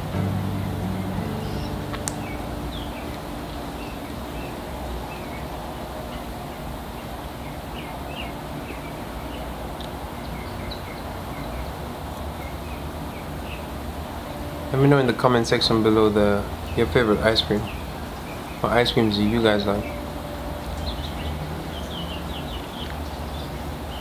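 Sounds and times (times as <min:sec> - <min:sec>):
low hum: 0:00.0 - 0:06.3, 0:13.3 - 0:24.0
steady hiss: 0:00.0 - 0:07.0
small birds chirping: 0:00.0 - 0:15.1, 0:15.9 - 0:24.0.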